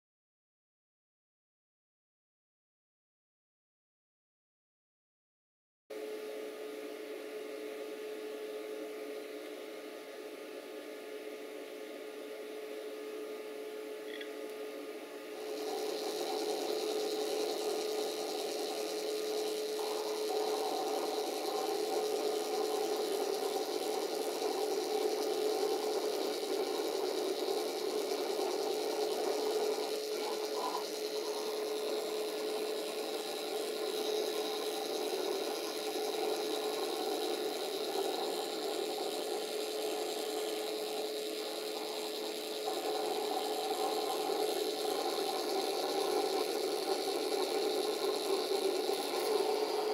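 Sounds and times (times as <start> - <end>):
three-d printer whining and rasping: 15.4 - 49.9.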